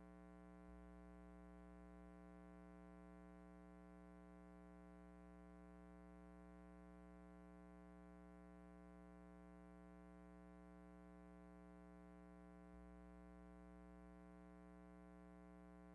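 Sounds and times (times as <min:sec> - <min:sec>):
faint steady hum: 0:00.0 - 0:15.9.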